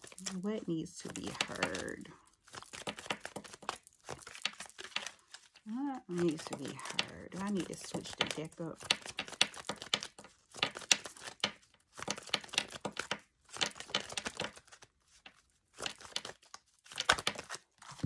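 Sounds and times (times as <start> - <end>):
cards being shuffled: 0.0 - 18.0.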